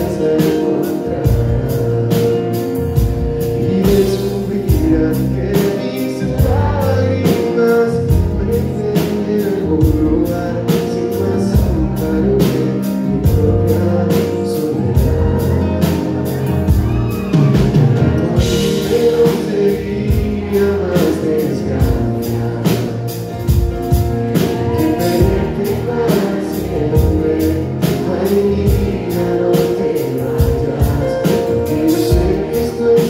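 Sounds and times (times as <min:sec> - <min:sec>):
keyboard: 0:00.0 - 0:33.0
man singing: 0:00.0 - 0:33.0.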